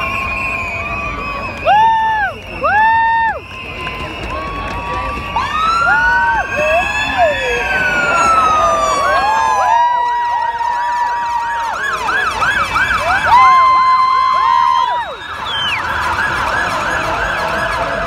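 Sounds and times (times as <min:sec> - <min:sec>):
ambulance siren wailing and yelping: 0:04.0 - 0:18.0.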